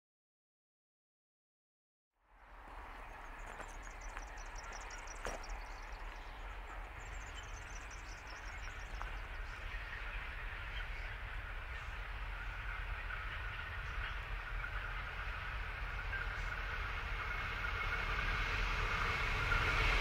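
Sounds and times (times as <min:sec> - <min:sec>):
distant freight train rumble: 0:02.3 - 0:20.0
birds chirping: 0:02.6 - 0:18.3.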